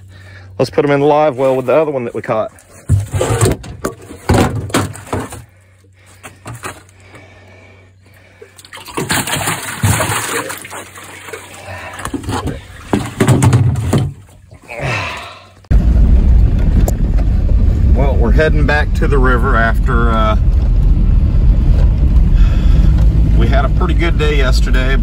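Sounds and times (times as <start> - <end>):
water splashing and sloshing: 1.2 - 15.7.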